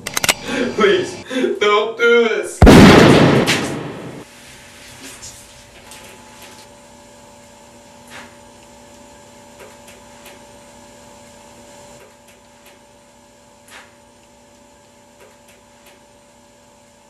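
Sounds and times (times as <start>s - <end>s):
electrical hum: 0.0s - 17.0s
room hiss: 0.4s - 1.7s.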